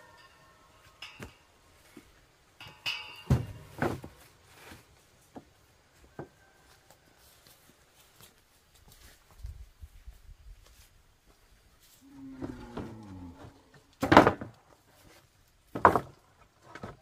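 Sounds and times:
sharp knocks and heavy thumps: 0:02.6 - 0:04.2.

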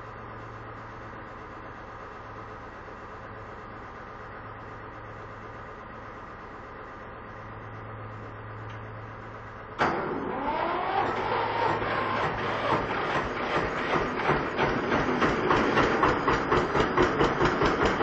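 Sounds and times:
diesel tractor engine knocking: 0:11.2 - 0:18.0.

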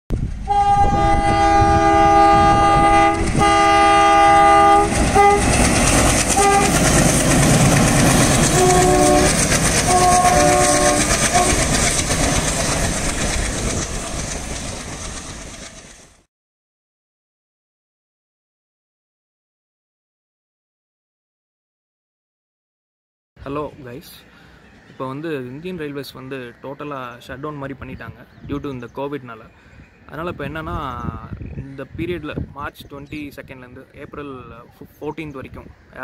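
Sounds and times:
locomotive horn blasts: 0:00.4 - 0:05.6, 0:06.3 - 0:06.9, 0:08.4 - 0:11.8
train wheels clattering over rails: 0:04.8 - 0:16.2.

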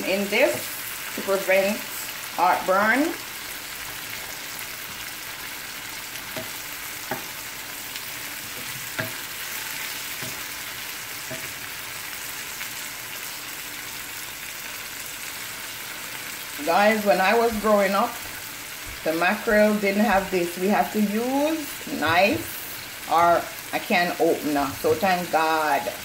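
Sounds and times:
vegetables sizzling in oil: 0:00.0 - 0:26.0
wooden spatula knocking a pan: 0:06.3 - 0:07.3, 0:08.6 - 0:09.3, 0:10.2 - 0:10.5.

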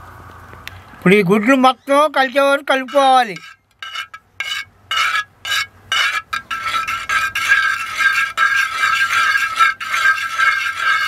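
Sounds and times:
metal spoon beating eggs in pot: 0:02.8 - 0:11.0.

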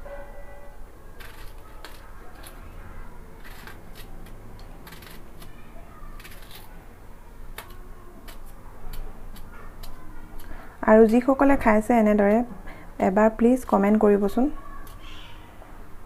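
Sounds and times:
knife chopping cucumber: 0:03.4 - 0:06.7, 0:07.5 - 0:11.3.

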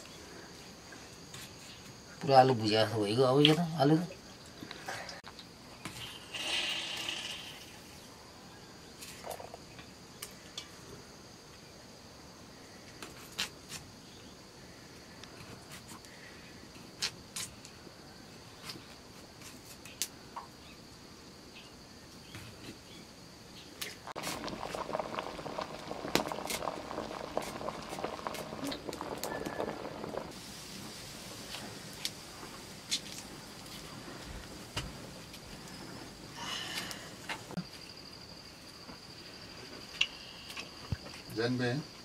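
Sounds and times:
pot boiling over fire: 0:00.0 - 0:20.6, 0:22.6 - 0:42.0
insect drone: 0:00.0 - 0:42.0.

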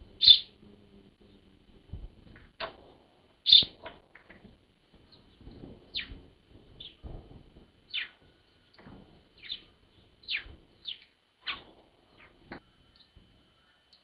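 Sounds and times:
bird chirping: 0:00.1 - 0:00.6, 0:03.4 - 0:04.3, 0:05.1 - 0:06.2, 0:07.9 - 0:08.2, 0:09.4 - 0:13.1.

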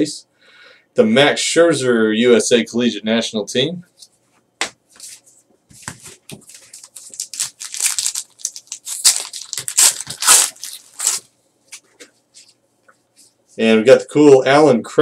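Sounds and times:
foil wrapper tearing and crinkling: 0:06.5 - 0:11.3.

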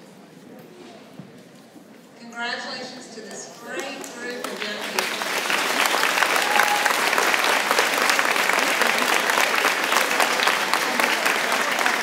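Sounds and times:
audience clapping: 0:03.7 - 0:12.0
cheering: 0:05.2 - 0:12.0.

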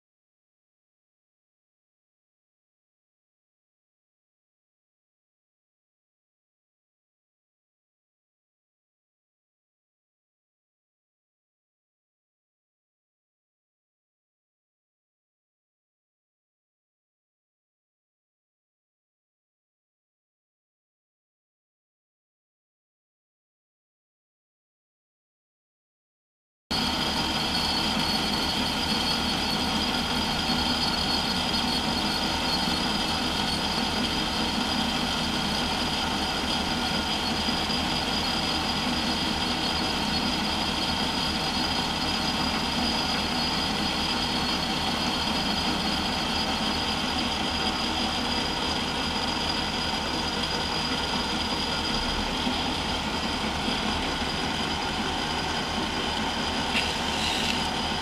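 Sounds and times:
metal lathe whining: 0:26.7 - 0:58.0
boring bar cutting metal: 0:49.9 - 0:58.0.

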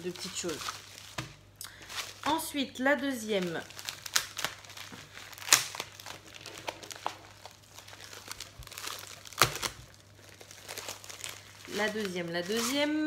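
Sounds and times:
plastic pouch crinkling: 0:00.0 - 0:13.0.

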